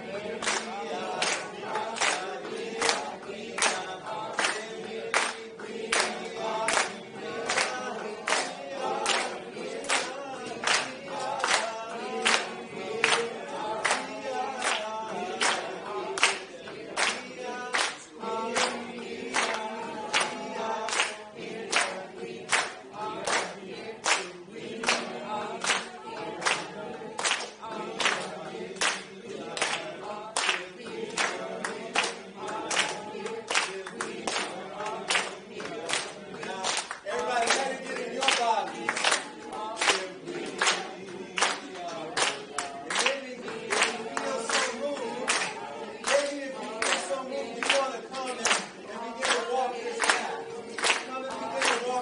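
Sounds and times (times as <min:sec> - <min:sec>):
group singing a cappella: 0:00.0 - 0:52.0
unison handclaps: 0:00.0 - 0:52.0.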